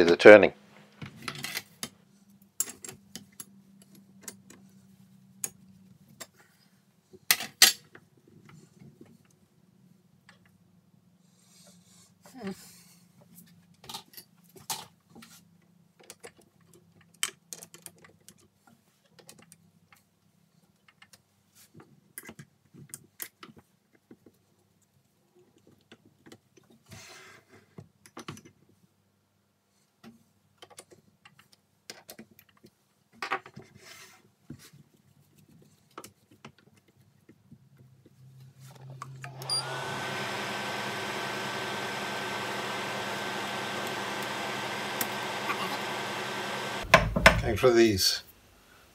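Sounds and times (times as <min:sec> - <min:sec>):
lathe motor whining: 0:39.3 - 0:46.9.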